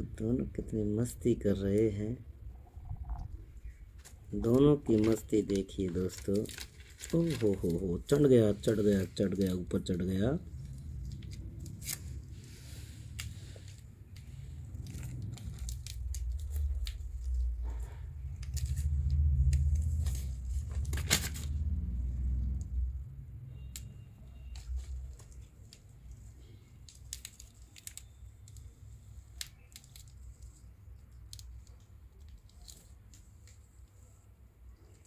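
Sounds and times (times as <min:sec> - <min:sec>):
low rumble: 0:02.2 - 0:03.9.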